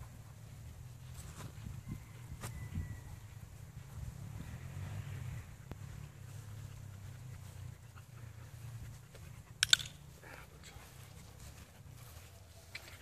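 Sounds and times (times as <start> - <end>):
dog panting: 6.0 - 13.0.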